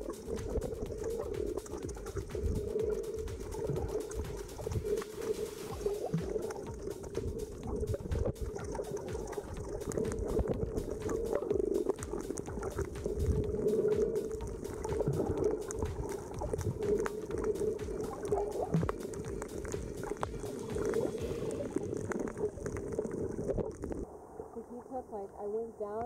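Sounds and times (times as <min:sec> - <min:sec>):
muffled water rumbling underwater: 0:00.0 - 0:25.0
crackle of small clicks: 0:06.1 - 0:24.0.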